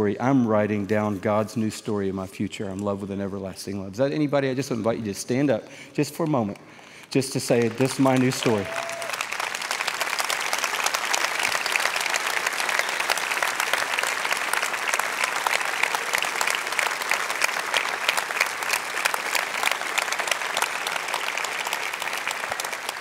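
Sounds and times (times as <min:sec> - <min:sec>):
audience applauding: 0:07.1 - 0:23.0.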